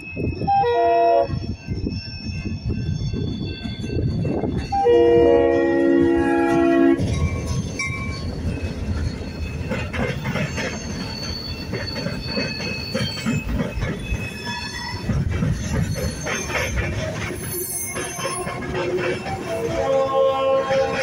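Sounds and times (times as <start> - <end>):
train rumbling past: 0.0 - 21.0
locomotive air horn: 0.4 - 1.4, 4.7 - 7.1, 19.4 - 21.0
high-pitched wheel squeal: 6.2 - 21.0.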